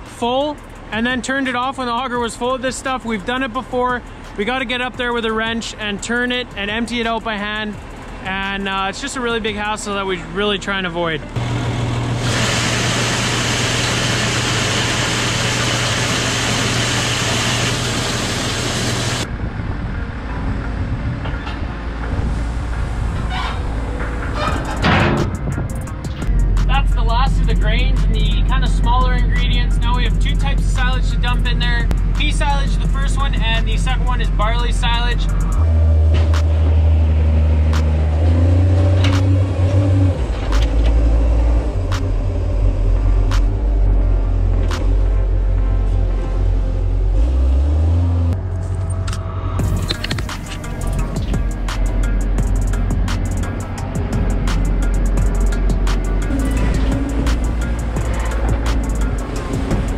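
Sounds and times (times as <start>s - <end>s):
low engine rumble: 0.0s - 59.9s
pellets running through auger: 12.2s - 19.2s
auger humming: 46.7s - 59.9s.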